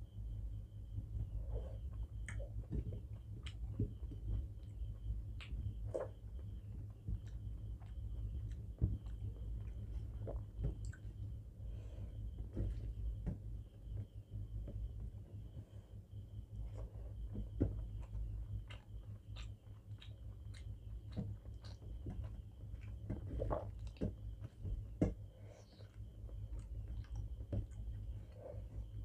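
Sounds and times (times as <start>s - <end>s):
steady low hum: 0.0s - 29.0s
person chewing food: 1.2s - 11.4s, 16.6s - 29.0s
wet mouth clicks and smacks: 18.7s - 20.7s.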